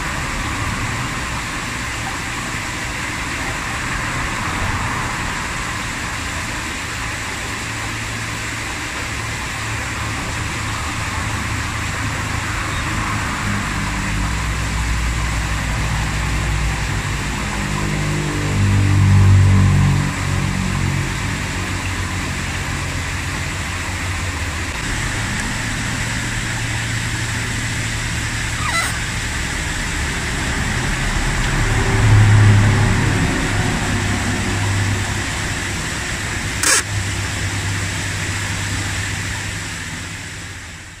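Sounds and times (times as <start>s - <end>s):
low machine hum with hiss: 0.0s - 41.0s
sharp click: 36.6s - 36.9s.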